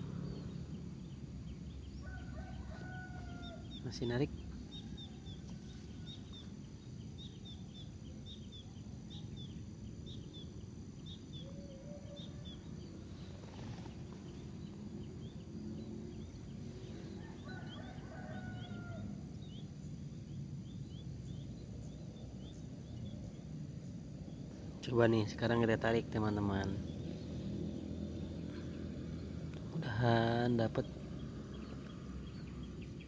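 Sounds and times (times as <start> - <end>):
steady low rumble: 0.0 - 2.4, 3.1 - 11.5, 12.2 - 18.0, 18.6 - 33.0
domestic fowl calling: 2.0 - 3.8, 16.9 - 19.2.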